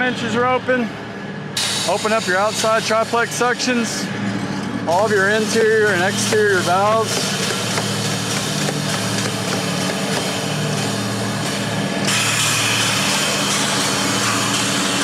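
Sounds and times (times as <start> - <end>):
sharp steady hiss: 1.6 - 4.1
diesel engine idling: 1.8 - 12.0.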